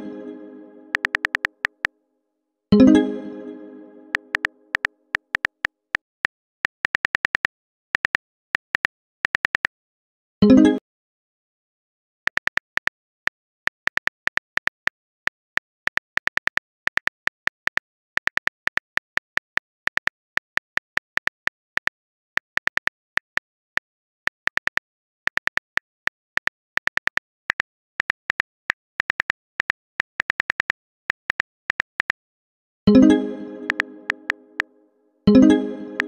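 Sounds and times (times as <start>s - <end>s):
phone keyboard tap clicks: 1.0s - 1.9s, 33.7s - 34.3s.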